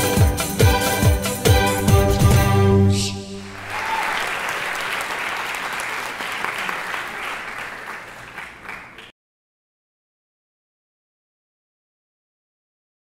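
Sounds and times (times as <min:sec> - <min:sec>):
audience applauding: 0:03.4 - 0:09.1.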